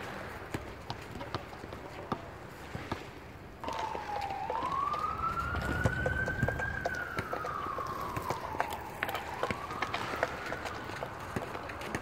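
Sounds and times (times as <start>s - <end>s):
stick and puck clicks on asphalt: 2.9s - 4.3s, 4.9s - 12.0s
siren wailing: 3.6s - 11.3s.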